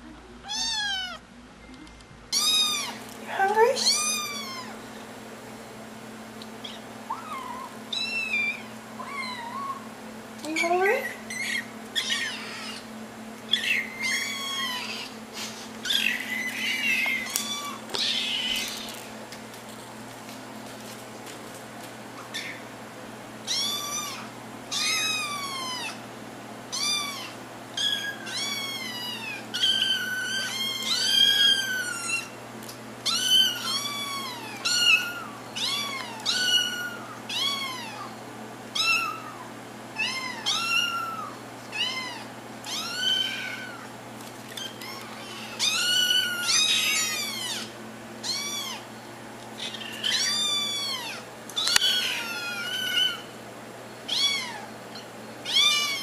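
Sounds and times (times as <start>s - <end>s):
kittens meowing: 0.4s - 1.2s, 2.3s - 3.0s, 3.8s - 4.8s, 6.6s - 9.9s, 10.5s - 12.9s, 13.5s - 15.2s, 15.8s - 19.0s, 22.2s - 22.6s, 23.4s - 26.0s, 26.7s - 32.4s, 33.0s - 38.1s, 38.8s - 43.9s, 44.5s - 48.9s, 49.6s - 53.3s, 54.1s - 56.0s.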